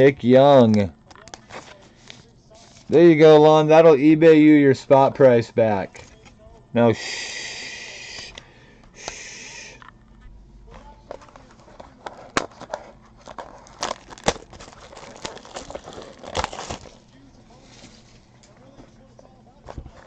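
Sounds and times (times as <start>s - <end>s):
wrapper crinkling: 11.0s - 18.3s
cards clicking and snapping: 11.1s - 17.0s
wrapper ripping: 11.7s - 17.0s.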